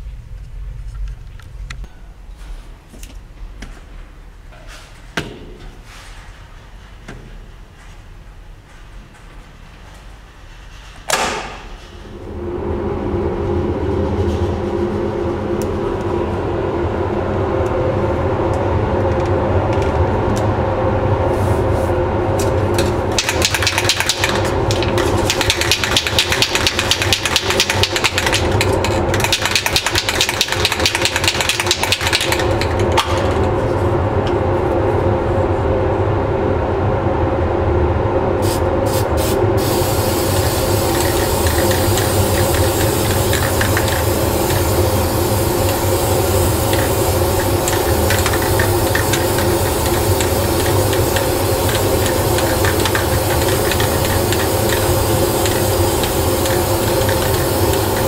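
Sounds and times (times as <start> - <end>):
exhaust fan humming: 0.0 - 58.0
aerosol spray can hissing: 38.4 - 58.0.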